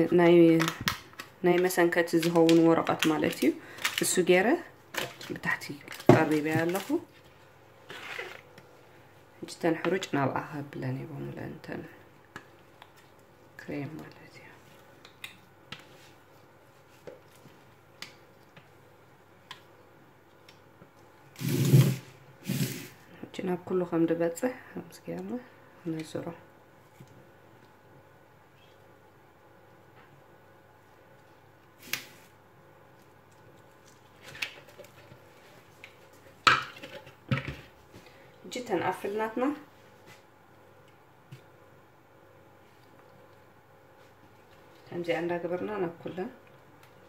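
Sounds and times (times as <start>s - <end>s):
spatula scraping batter: 6.6s - 8.7s.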